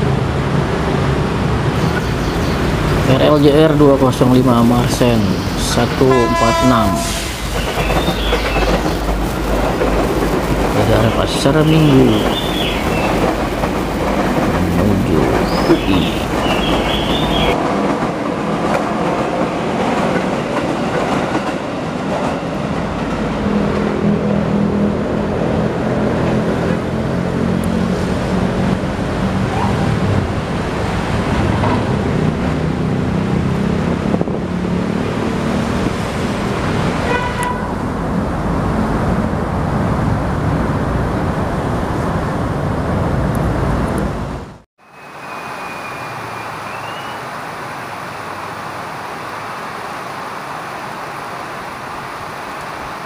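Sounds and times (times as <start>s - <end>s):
electric train passing: 0.0s - 53.0s
rain hiss: 1.8s - 17.6s, 44.8s - 53.0s
train horn toot: 6.0s - 7.4s, 37.0s - 37.8s.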